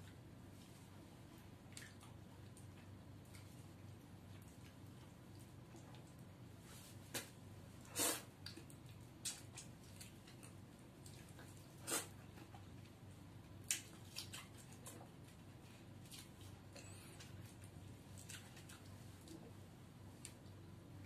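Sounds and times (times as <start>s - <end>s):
wet eating smacks and sucks: 7.9s - 10.6s.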